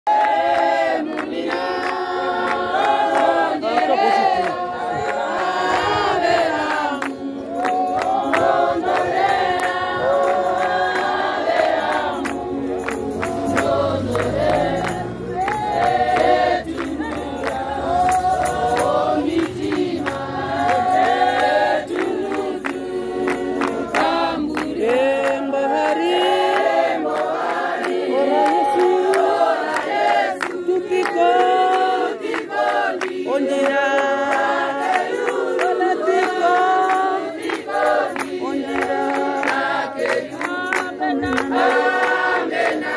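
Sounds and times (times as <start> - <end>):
congregation singing a hymn: 0.1 - 42.9
sharp percussive beats: 4.8 - 25.6.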